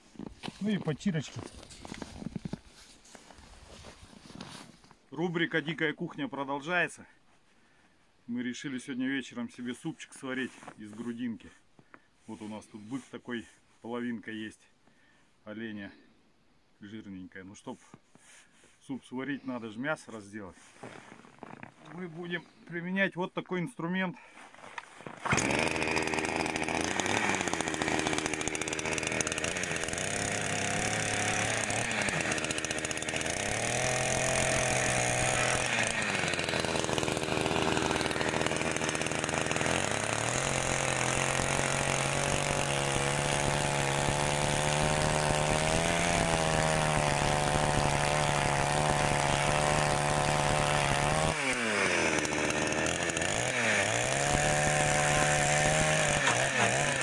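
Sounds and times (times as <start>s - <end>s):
chainsaw sawing through carcass: 25.0s - 57.0s.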